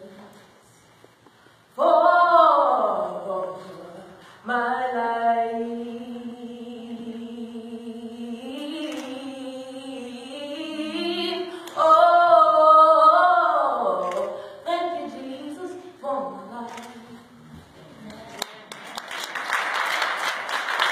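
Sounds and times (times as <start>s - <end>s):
woman singing gospel: 1.8s - 17.2s
audience applause: 18.1s - 20.9s.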